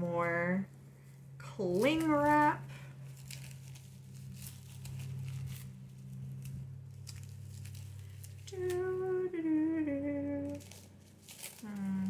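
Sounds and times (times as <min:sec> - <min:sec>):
plastic cling wrap crinkling: 0:01.5 - 0:12.0
woman humming: 0:08.5 - 0:10.8, 0:11.6 - 0:12.0.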